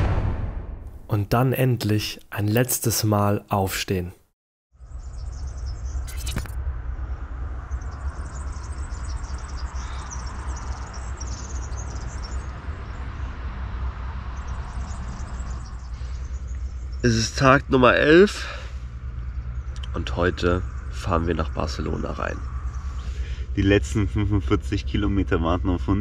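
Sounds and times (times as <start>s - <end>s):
steady outdoor rumble: 4.7s - 26.0s
birds chirping faintly: 4.8s - 26.0s
single click: 6.1s - 6.6s.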